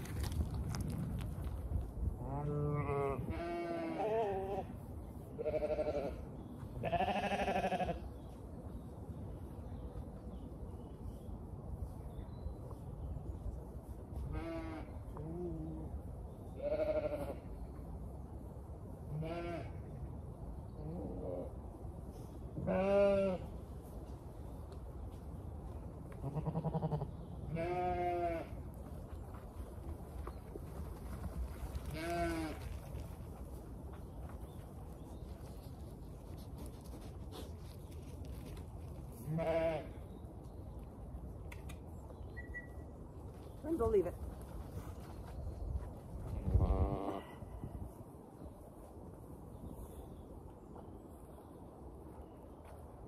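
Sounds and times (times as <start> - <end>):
sheep bleating: 2.4 - 4.7, 5.4 - 6.2, 6.8 - 8.0, 16.6 - 17.4, 22.6 - 23.4, 26.2 - 28.5, 39.3 - 39.9.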